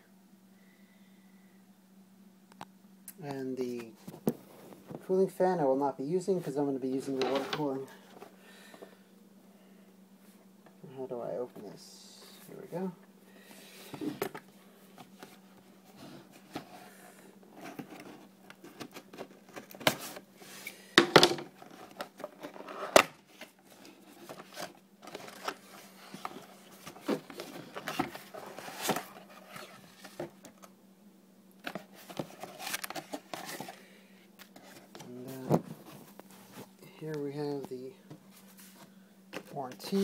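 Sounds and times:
cardboard box being unpacked: 21.5s - 30.4s, 31.6s - 33.8s.

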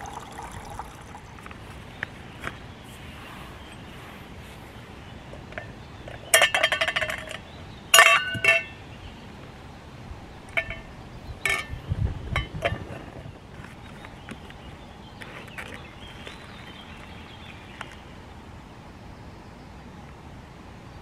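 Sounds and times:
camp cookware clinking: 0.0s - 2.1s, 5.5s - 8.8s, 10.5s - 13.7s.

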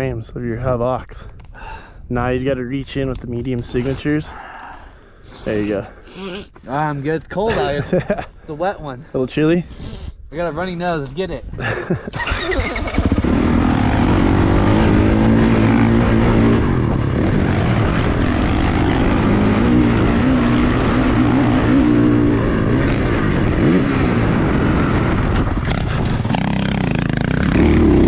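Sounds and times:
dirt bike engine accelerating: 12.1s - 28.0s.

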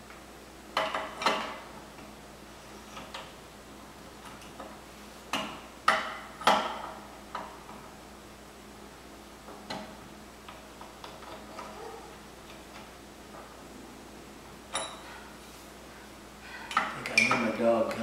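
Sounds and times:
pedal wrench clinking on metal: 14.7s - 15.2s.

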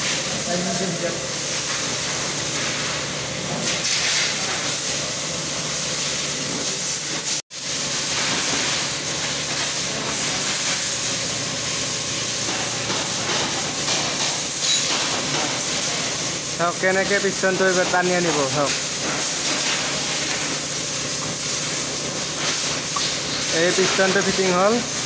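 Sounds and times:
steady hiss: 6.8s - 25.0s.

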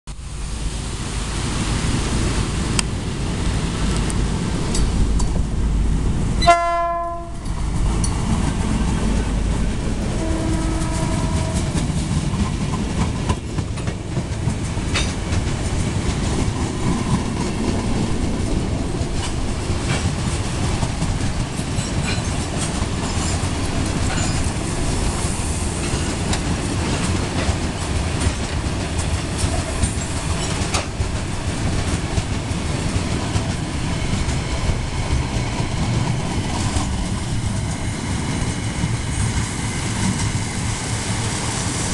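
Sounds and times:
freight train rumbling past: 0.1s - 41.9s
train horn: 6.4s - 7.5s, 10.0s - 11.9s.

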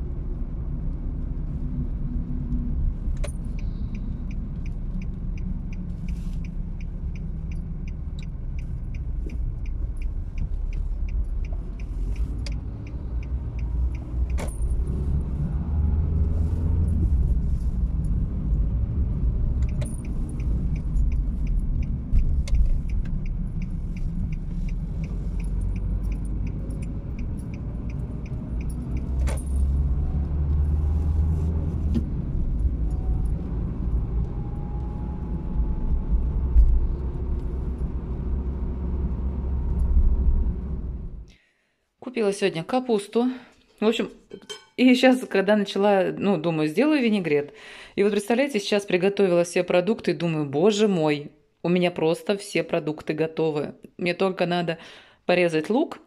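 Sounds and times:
car engine and tyres rumble: 0.0s - 41.4s
fast faint ticking: 19.6s - 29.2s.

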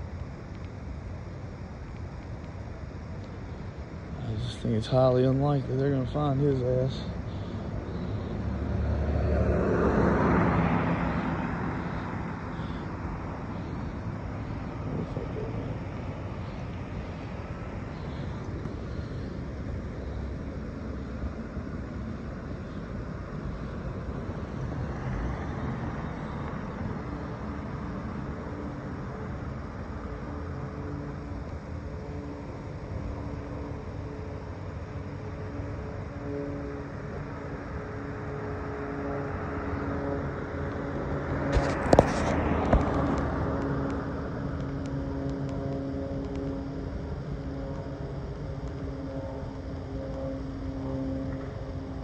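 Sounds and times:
road traffic rumble: 0.0s - 52.0s
vehicle passing by: 5.0s - 19.5s.

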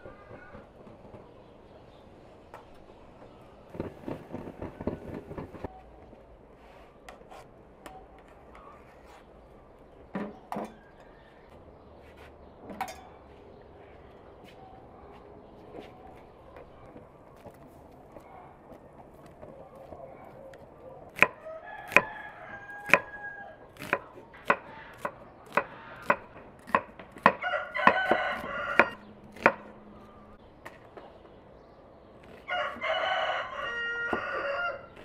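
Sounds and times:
rooster crowing: 21.2s - 23.6s, 27.3s - 29.1s, 32.4s - 35.0s.

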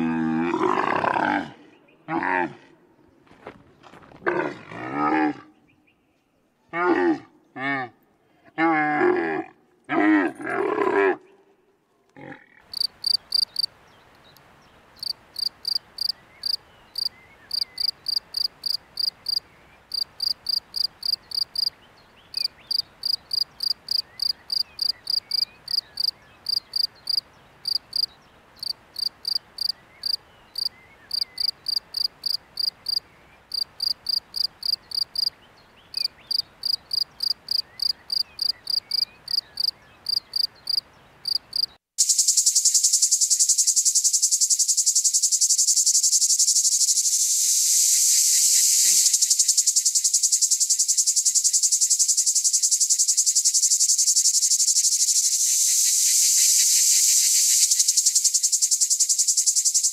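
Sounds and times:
cricket chirping: 12.7s - 13.7s, 15.0s - 59.9s.

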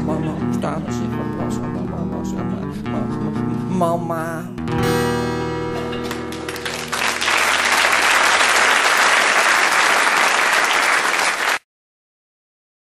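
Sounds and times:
acoustic guitar chord ringing: 0.3s - 7.2s
audience applauding: 6.0s - 11.6s.

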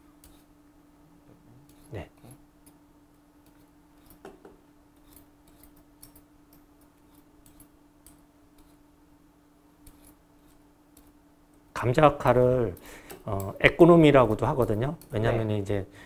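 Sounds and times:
low steady hum: 0.0s - 16.0s
peeler scraping potato skin: 4.9s - 6.2s, 9.8s - 11.2s.

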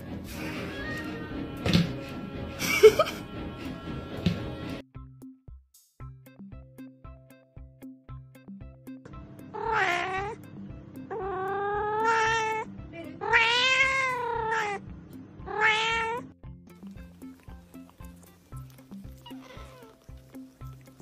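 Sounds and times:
background music with steady beat: 0.0s - 13.2s, 13.9s - 21.0s
cat meowing loudly: 9.6s - 10.4s, 11.1s - 14.8s, 15.5s - 16.2s, 19.2s - 20.0s.

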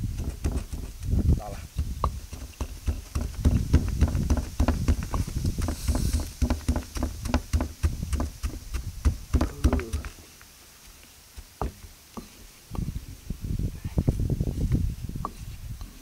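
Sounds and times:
pestle pounding in stone mortar: 0.0s - 10.1s.

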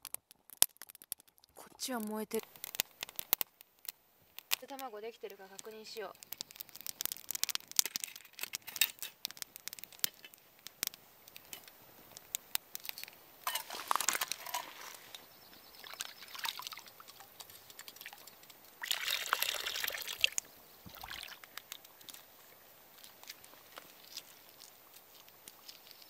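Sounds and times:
water sloshing and pouring: 15.8s - 17.3s, 18.8s - 21.4s.

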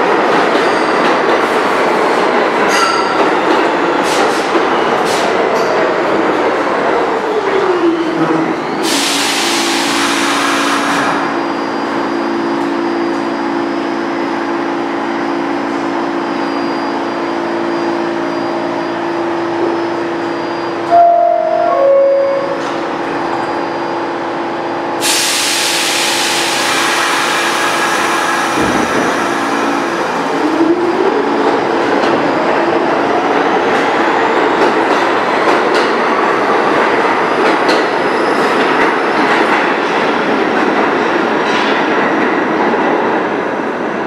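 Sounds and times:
train wheels clattering on rails: 0.0s - 7.6s, 31.4s - 43.2s
two-tone door chime: 20.7s - 22.8s
loud hiss: 25.0s - 30.0s.

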